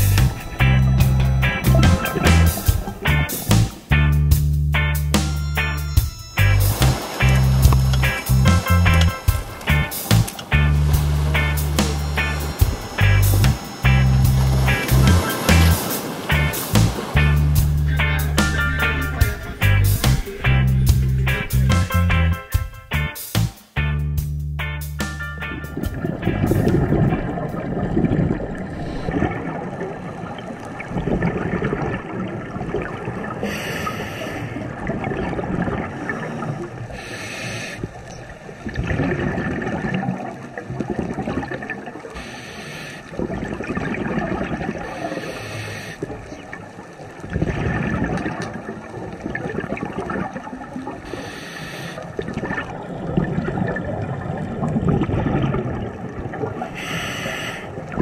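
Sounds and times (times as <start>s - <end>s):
gurgling exhaled bubbles underwater: 25.8s - 37.1s, 37.8s - 42.2s, 43.1s - 51.3s, 51.9s - 58.0s
regulator inhale hiss: 33.4s - 34.7s, 36.9s - 38.0s, 42.2s - 43.2s, 44.9s - 46.1s, 51.0s - 52.2s, 56.8s - 57.9s.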